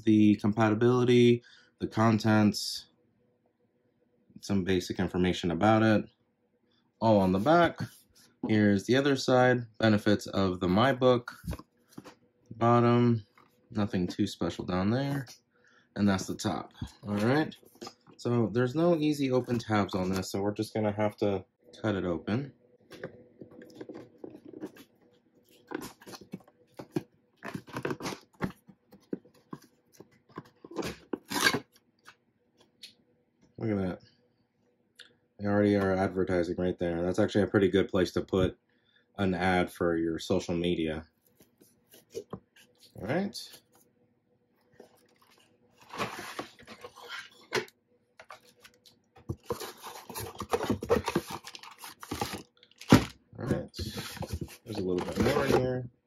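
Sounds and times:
tape tearing: 30.8 - 31.7
cardboard box being opened: 44.8 - 47.6, 48.2 - 53.1, 53.8 - 55.6.

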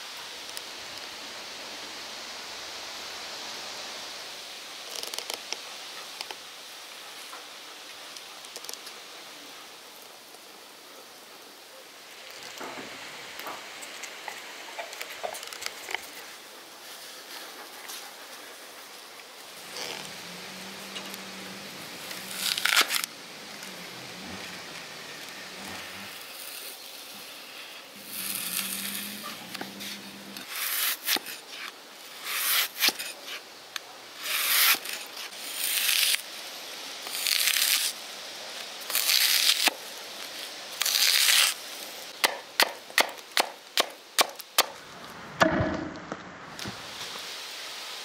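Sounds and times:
cleaver chopping apple on wood: 42.2 - 44.8.

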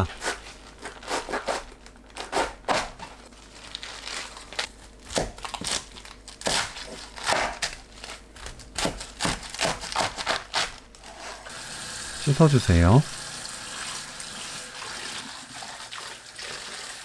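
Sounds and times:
knife cutting cabbage: 0.0 - 11.5.

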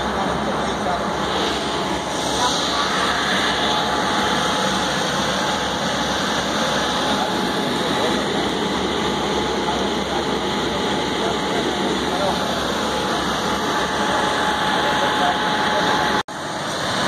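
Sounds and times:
people talking indistinctly: 0.0 - 16.2.

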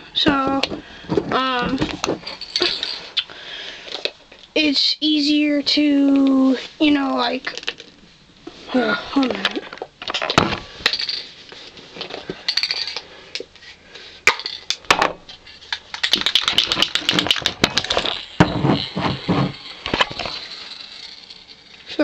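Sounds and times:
spray can ball rattling: 12.5 - 13.0, 15.5 - 22.0.

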